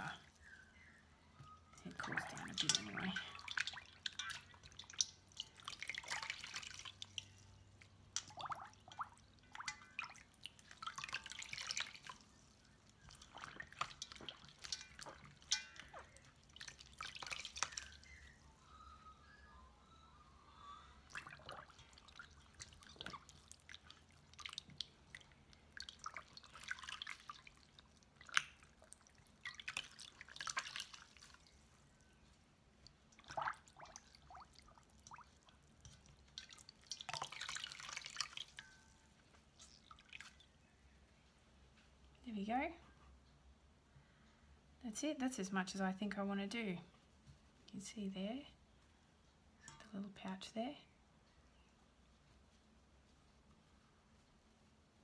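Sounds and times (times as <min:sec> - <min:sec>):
water splashing and dripping: 0:01.8 - 0:18.4, 0:21.0 - 0:31.8, 0:32.8 - 0:40.6.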